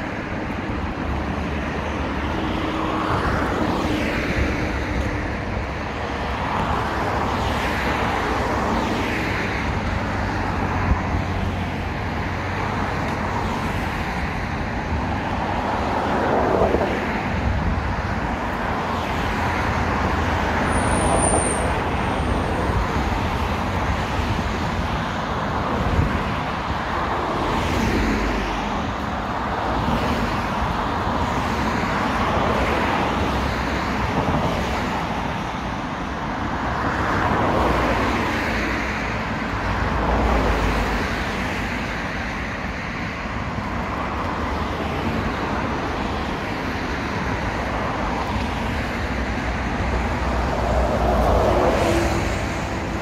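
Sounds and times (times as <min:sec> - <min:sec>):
road traffic passing: 0:00.0 - 0:53.0.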